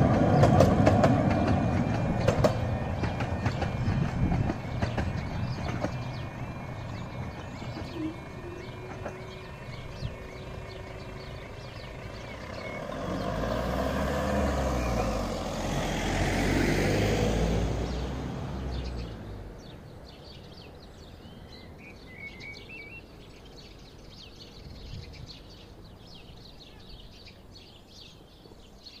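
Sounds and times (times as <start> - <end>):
birds chirping: 0.0 - 15.9, 16.6 - 29.0
cars driving past: 6.0 - 19.8.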